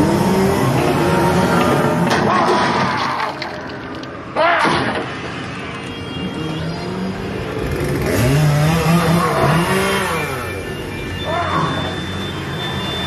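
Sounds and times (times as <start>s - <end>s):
chainsaw engine revving: 7.7s - 10.5s.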